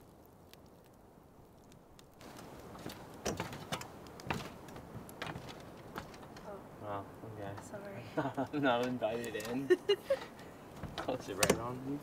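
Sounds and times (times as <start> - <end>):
campfire crackling: 0.0 - 12.0
footsteps on metal steps: 2.7 - 6.4
camper door being handled: 10.8 - 11.7.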